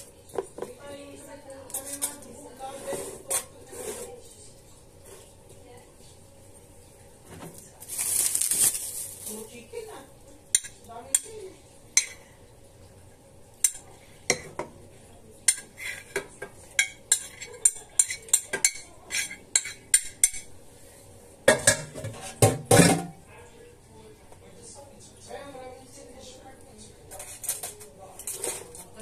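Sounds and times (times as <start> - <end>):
utensil clinking against ceramic dish: 15.5 - 20.5.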